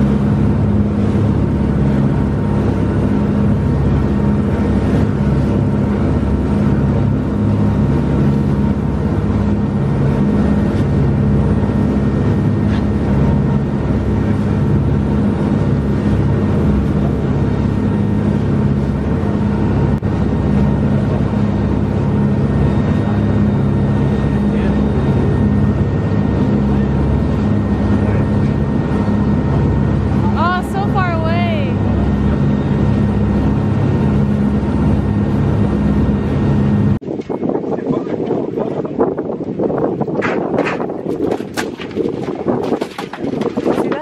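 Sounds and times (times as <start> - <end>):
boat engine drone: 0.0 - 44.0
churning wake: 0.0 - 44.0.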